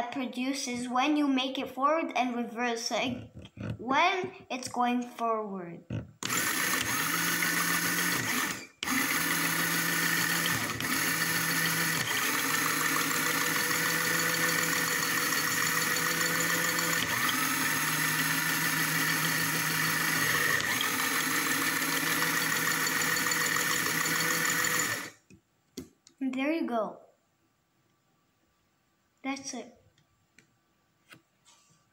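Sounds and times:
small electric motor whining: 6.2 - 25.2.

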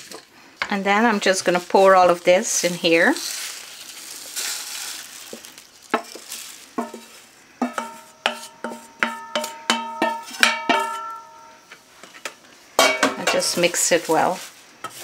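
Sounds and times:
powder pouring into steel bowl: 1.1 - 7.4
wooden spoon knocking metal bowl: 6.8 - 11.3.

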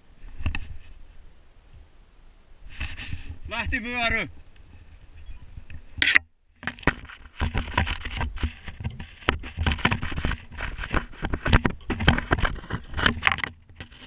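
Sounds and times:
clothing rubbing against camera: 2.7 - 3.5, 6.9 - 14.0
branches scraping and crackling: 2.7 - 14.0.

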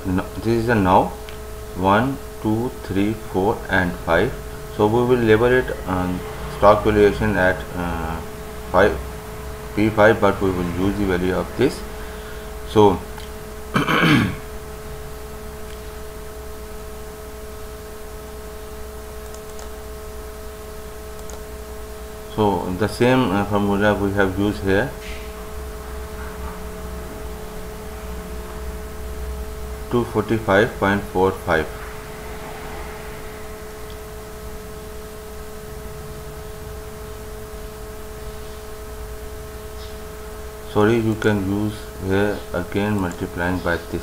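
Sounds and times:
electrical hum and hiss: 0.0 - 44.0
mid-pitched whine: 0.0 - 44.0
faint clicks: 21.2 - 21.4.

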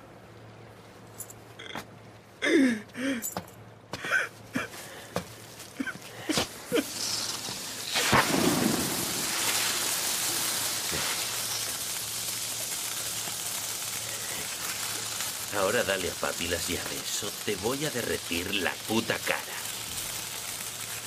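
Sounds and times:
flare burning with loud hiss: 4.9 - 21.0
flare igniting: 5.6 - 21.0.

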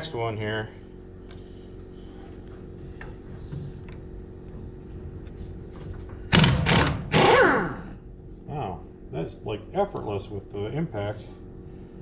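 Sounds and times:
air impact wrench hammering: 6.3 - 7.9.

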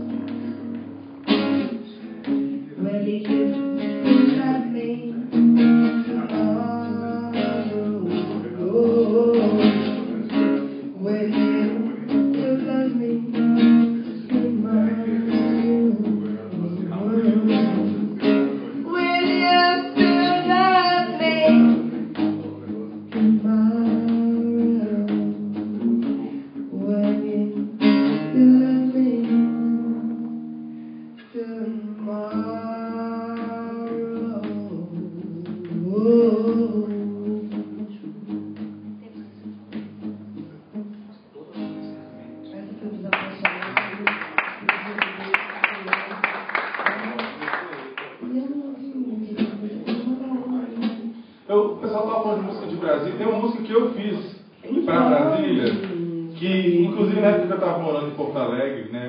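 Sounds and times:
acoustic guitar strumming: 0.0 - 46.0, 49.2 - 58.7
woman singing: 2.2 - 22.0, 23.1 - 30.6, 31.2 - 39.4, 48.2 - 51.2.

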